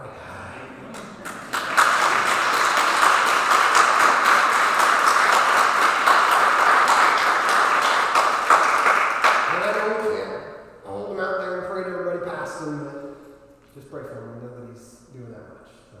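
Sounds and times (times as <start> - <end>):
congregation applauding: 0.8 - 10.3.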